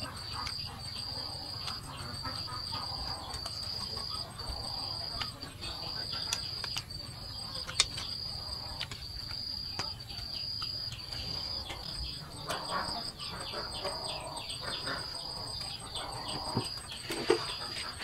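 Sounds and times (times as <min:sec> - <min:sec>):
insects trilling: 0:00.0 - 0:18.0
sharp clicks: 0:06.0 - 0:12.1.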